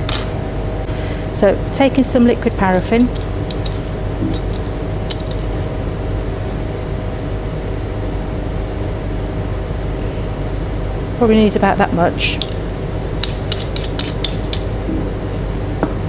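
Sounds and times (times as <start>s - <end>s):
low background hum: 0.0s - 16.0s
glass pipette clinking on bottle: 3.1s - 5.4s.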